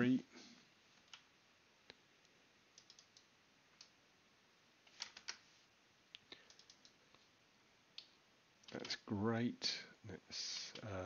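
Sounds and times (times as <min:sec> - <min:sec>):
computer keyboard keystrokes: 0:02.8 - 0:03.9, 0:04.9 - 0:05.4, 0:06.4 - 0:07.0.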